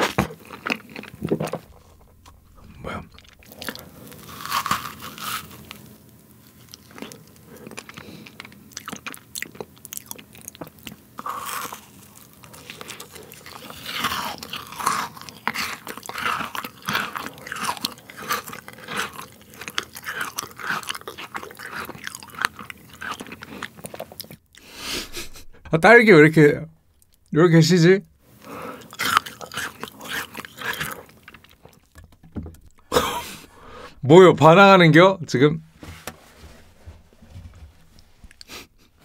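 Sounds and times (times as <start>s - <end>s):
biting and chewing food: 0.0s - 24.8s, 28.3s - 34.0s.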